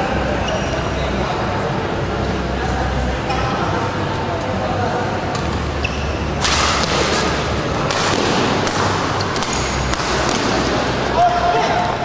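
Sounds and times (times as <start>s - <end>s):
shoe squeaks on court floor: 5.8s - 6.3s
racket hitting shuttlecock: 6.4s - 10.9s.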